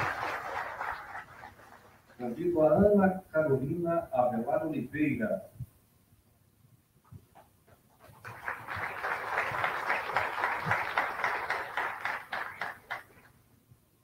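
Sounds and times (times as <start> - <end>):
audience applause: 0.0 - 2.3, 8.1 - 13.3.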